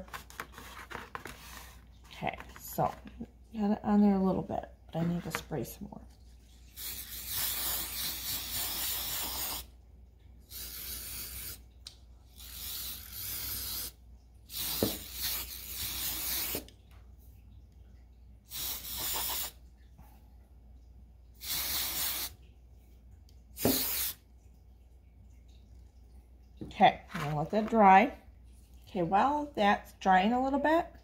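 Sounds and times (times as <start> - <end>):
aerosol spray can hissing: 6.8 - 9.7, 10.5 - 11.6, 14.5 - 16.6, 18.5 - 19.5, 21.4 - 22.3, 23.6 - 24.2.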